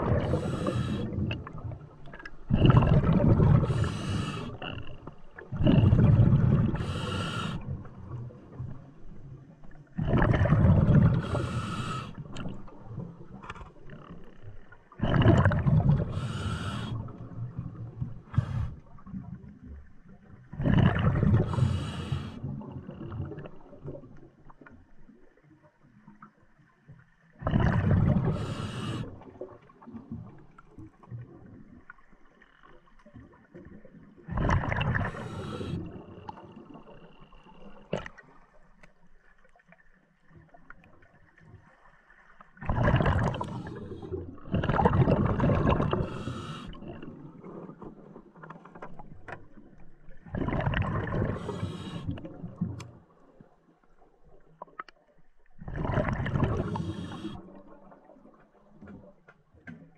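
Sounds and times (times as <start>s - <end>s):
regulator inhale hiss: 0.2s - 1.2s, 3.7s - 4.6s, 6.8s - 7.6s, 11.2s - 12.2s, 16.1s - 17.1s, 18.3s - 18.8s, 21.5s - 22.4s, 28.3s - 29.2s, 35.0s - 36.1s, 46.0s - 46.8s, 51.3s - 52.2s, 56.7s - 57.4s.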